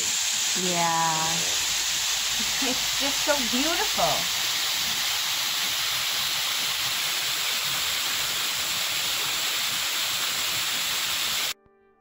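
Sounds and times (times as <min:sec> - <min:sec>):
waterfall splashing over rocks: 0:00.0 - 0:11.6.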